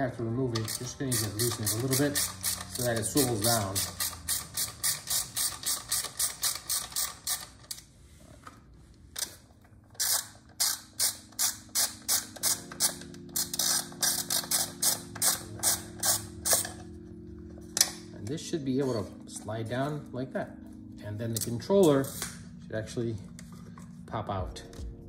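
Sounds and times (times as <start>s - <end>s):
hand ratchet clicking: 0.6s - 7.8s, 9.9s - 16.8s.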